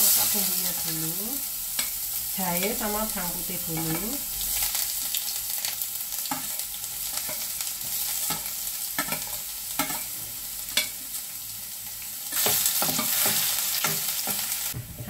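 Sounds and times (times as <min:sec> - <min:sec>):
garlic sizzling in hot oil: 0:00.0 - 0:14.8.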